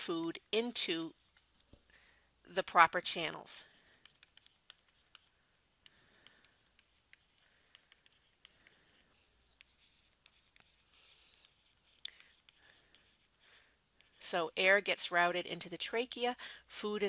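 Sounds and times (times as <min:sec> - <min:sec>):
stylus tapping on tablet screen: 0:03.9 - 0:13.2.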